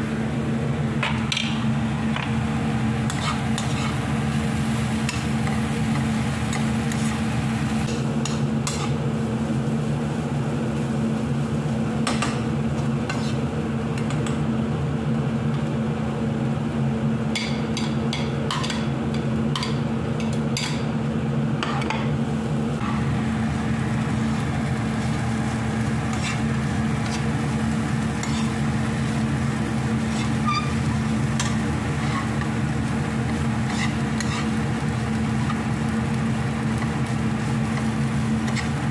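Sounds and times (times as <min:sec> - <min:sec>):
steady hum: 0:00.0 - 0:38.9
vegetables sizzling: 0:01.6 - 0:10.2, 0:22.7 - 0:38.9
spatula scraping nonstick pan: 0:03.1 - 0:04.0, 0:13.1 - 0:13.4, 0:26.0 - 0:27.5, 0:28.1 - 0:28.7, 0:29.9 - 0:32.5, 0:33.2 - 0:34.6, 0:38.4 - 0:38.8.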